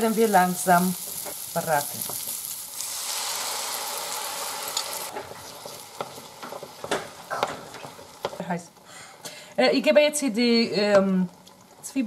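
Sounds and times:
onions and ham sizzling in pan: 0.0 - 8.6
egg poured into hot pan: 2.3 - 6.0.

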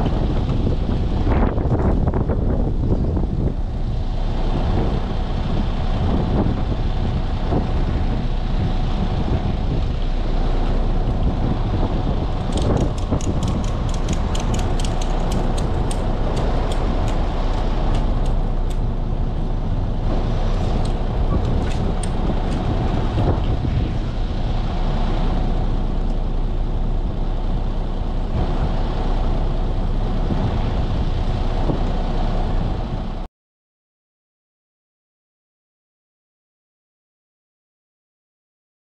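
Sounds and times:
truck engine rumbling: 0.0 - 33.3
sharp clicks: 12.5 - 18.8.

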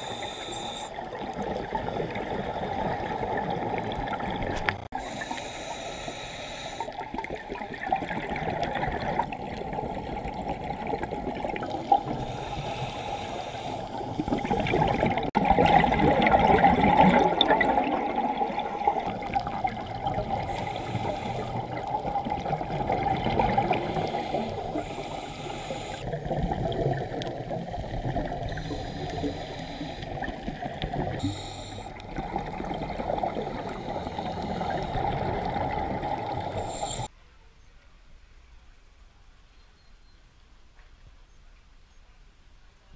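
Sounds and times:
scuba regulator hiss: 0.0 - 1.0, 5.0 - 7.0, 12.2 - 14.5, 20.4 - 21.7, 23.8 - 26.1, 28.5 - 30.2, 31.2 - 32.0, 33.6 - 35.1, 36.6 - 37.1
underwater bubbling and gurgling: 0.0 - 37.1.

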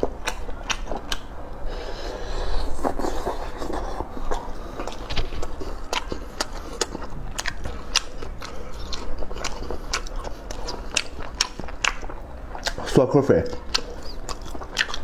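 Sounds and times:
chewing: 0.0 - 15.0
wet lip-smacking clicks: 0.2 - 1.3.

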